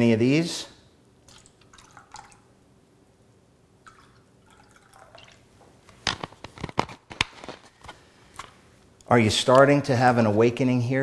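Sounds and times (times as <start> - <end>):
soda trickling into a cup: 1.2 - 2.5, 3.8 - 5.5.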